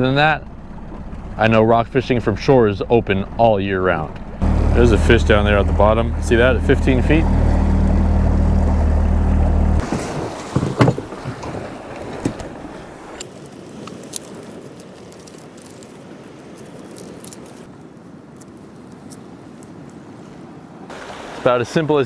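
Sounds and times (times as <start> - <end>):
wind: 0.0 - 22.0
outboard motor running: 4.2 - 13.2
waves washing: 4.2 - 22.0.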